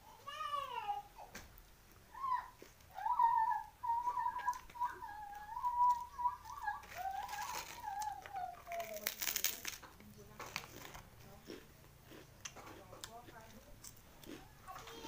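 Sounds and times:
rice cracker crunching: 4.2s - 15.0s.

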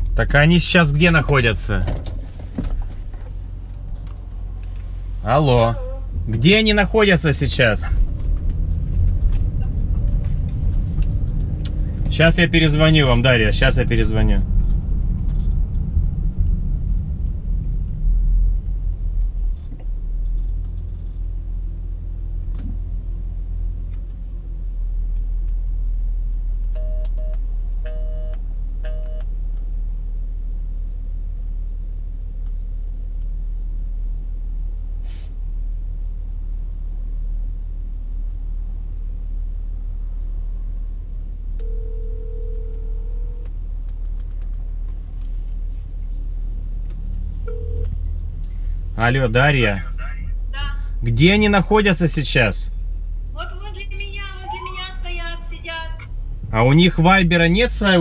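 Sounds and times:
low car cabin rumble: 0.0s - 58.0s
phone ringback tone: 41.6s - 43.4s, 47.5s - 47.8s.

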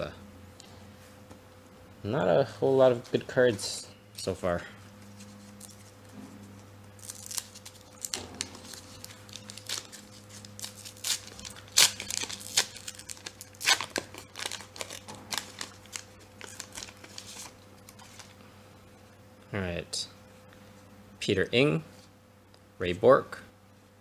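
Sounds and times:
foil tearing rips: 7.0s - 18.3s
foil wrapper crinkling: 7.0s - 18.4s.

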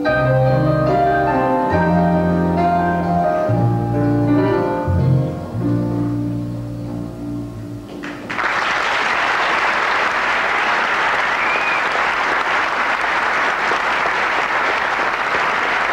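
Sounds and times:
guitar and piano chord: 0.0s - 8.2s
audience applause: 8.0s - 15.9s.

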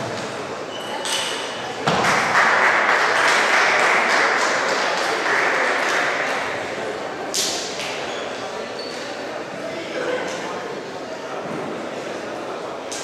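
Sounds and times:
spectators applauding: 2.0s - 6.5s.

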